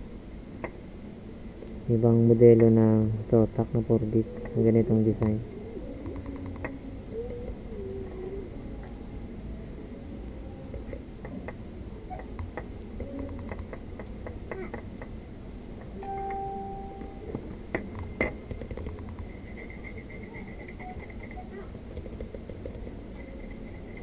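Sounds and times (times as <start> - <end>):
small clicks and ticks: 6.0 - 9.5, 10.6 - 11.6, 12.2 - 15.2, 17.7 - 24.0
short steady tone: 16.0 - 17.6
brush scrubbing circuit board: 18.8 - 24.0.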